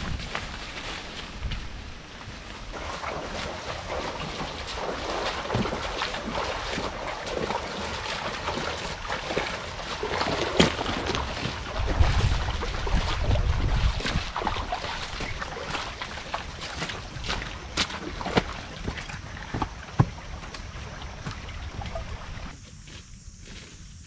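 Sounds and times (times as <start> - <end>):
wind rumble on microphone: 0.0 - 2.8, 10.1 - 22.6
footsteps through undergrowth: 0.0 - 3.4, 4.2 - 24.0
splashing across a stream: 2.7 - 22.6.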